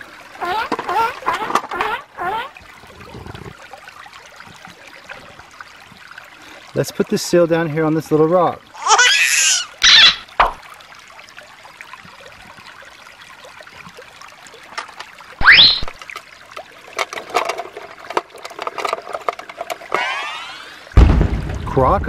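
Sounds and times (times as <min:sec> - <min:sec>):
stream trickling over stones: 0:00.0 - 0:22.0
quick rising sound: 0:20.0 - 0:20.8
sudden loud sounds: 0:20.0 - 0:22.0.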